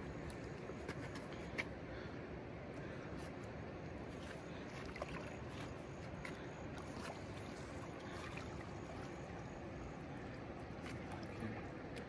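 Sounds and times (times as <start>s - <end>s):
river water flowing over rocks: 3.4s - 12.0s.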